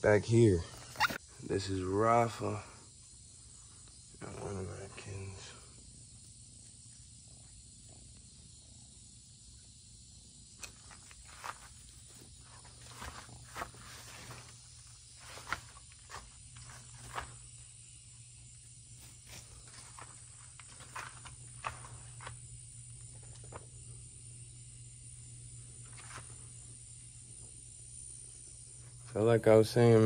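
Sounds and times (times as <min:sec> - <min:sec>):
steady low hum: 0:00.0 - 0:30.0
footsteps on leafy ground: 0:11.2 - 0:17.4.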